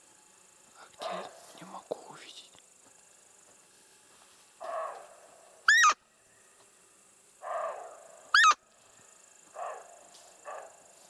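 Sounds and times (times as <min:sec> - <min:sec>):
distant harsh animal call: 0:04.6 - 0:06.1, 0:07.4 - 0:08.6
deer call squeak: 0:05.7 - 0:06.0, 0:08.3 - 0:08.6.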